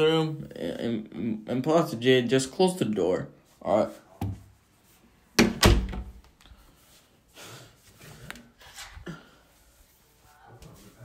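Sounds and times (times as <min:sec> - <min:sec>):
door shutting thud: 0:05.4 - 0:06.2.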